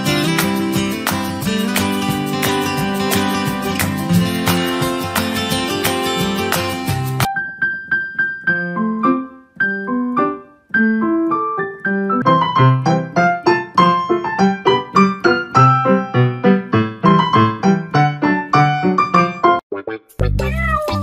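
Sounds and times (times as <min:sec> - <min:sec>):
piano music: 0:00.0 - 0:21.0.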